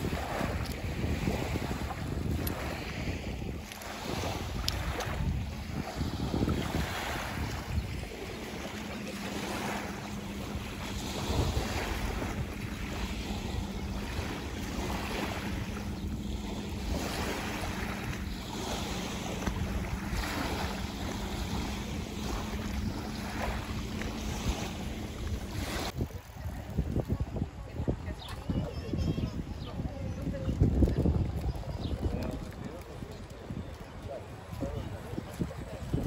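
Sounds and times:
waves washing onto shore: 0.0 - 28.5
wind buffeting microphone: 0.0 - 36.0.

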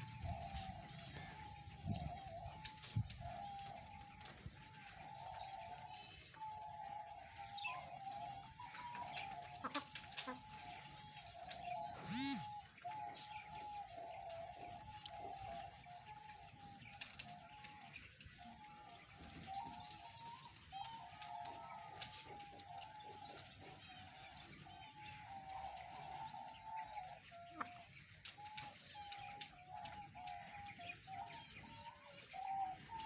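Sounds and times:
wavering bird call: 11.8 - 13.2
short clicks: 12.0 - 12.6
loud chicken call: 12.0 - 12.8.

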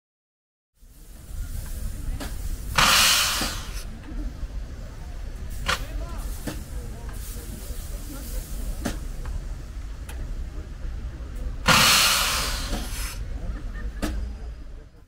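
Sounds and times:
loud hiss: 0.8 - 10.0, 11.6 - 13.3.

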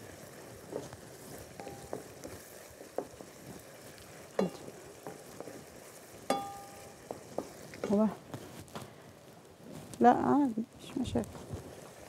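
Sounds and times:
meat frying in a pan: 0.0 - 12.0
wooden spoon knocking pan: 1.5 - 3.4, 4.4 - 5.6, 6.2 - 8.0.

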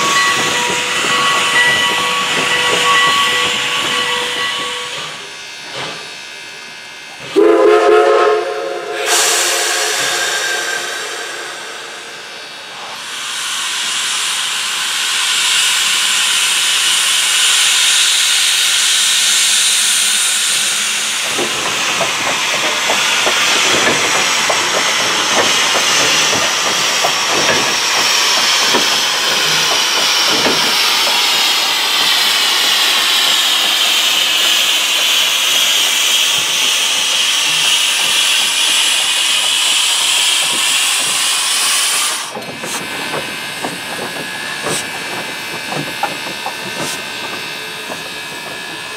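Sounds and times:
knocks and clanks: 0.0 - 6.1, 21.2 - 32.7, 42.3 - 48.9
steam venting hiss: 0.0 - 48.9.

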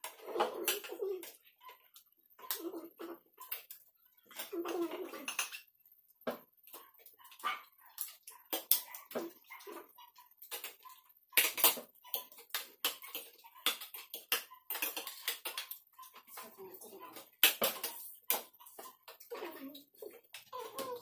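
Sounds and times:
cutlery clicking on plates: 2.4 - 5.7, 6.3 - 21.0.

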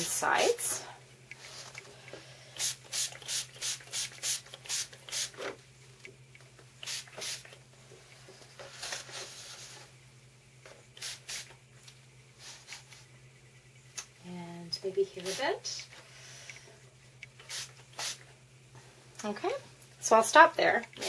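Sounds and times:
pump spray bottle squirting: 2.6 - 5.5, 6.8 - 7.6, 11.0 - 11.6, 17.3 - 18.2.

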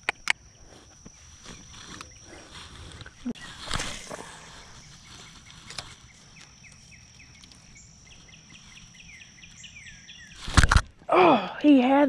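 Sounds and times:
high-pitched insect drone: 0.0 - 10.5
sharp click: 10.4 - 10.9.

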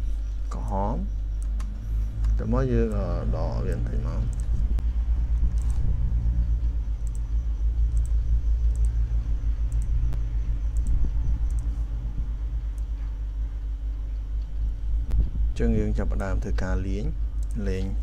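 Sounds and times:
loud low rumble: 1.0 - 18.0
computer mouse clicks: 1.4 - 3.1, 3.7 - 5.9, 7.0 - 9.0, 9.7 - 11.8, 17.4 - 17.6.

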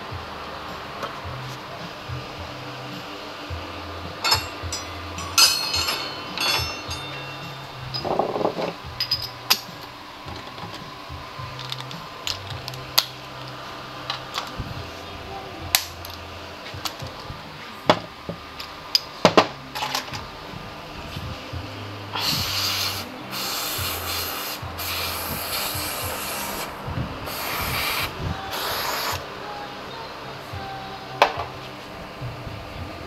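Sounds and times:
quiet background music: 0.0 - 33.0
metal tools clinking: 4.2 - 10.8, 19.8 - 20.2
aerosol spray can hissing: 22.2 - 26.7, 27.3 - 29.2.

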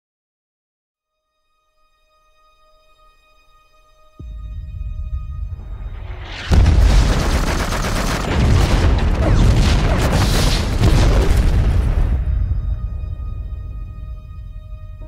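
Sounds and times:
heavy boom: 4.2 - 15.0
low rumble: 4.2 - 15.0
explosions: 5.2 - 13.9
gunfire: 6.4 - 12.2.

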